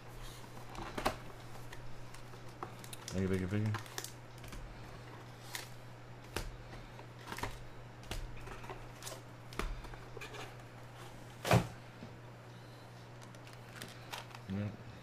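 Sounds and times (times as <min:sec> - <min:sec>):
foil packs rustling: 0:00.2 - 0:05.8, 0:13.1 - 0:14.7.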